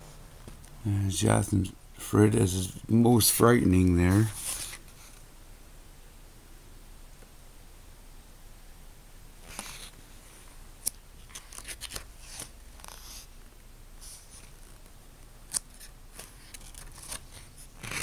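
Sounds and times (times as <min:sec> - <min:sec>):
book pages rustling: 0:04.0 - 0:05.2, 0:09.4 - 0:10.0, 0:10.8 - 0:13.3, 0:14.0 - 0:18.0.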